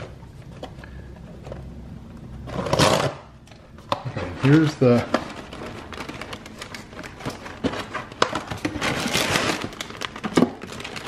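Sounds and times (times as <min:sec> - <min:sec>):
plastic bag and cardboard crinkling: 0:02.4 - 0:11.0.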